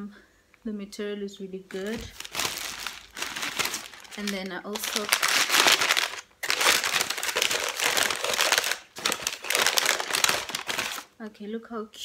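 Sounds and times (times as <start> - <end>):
wrapping crinkling and rustling: 1.7 - 11.1.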